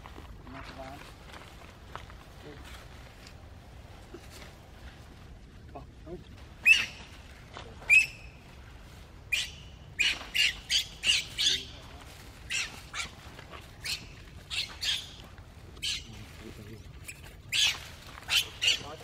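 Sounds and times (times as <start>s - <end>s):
baby monkey squealing: 6.6s - 7.1s, 7.8s - 8.3s, 9.3s - 11.7s, 12.5s - 15.2s, 15.8s - 16.1s, 17.0s - 19.0s.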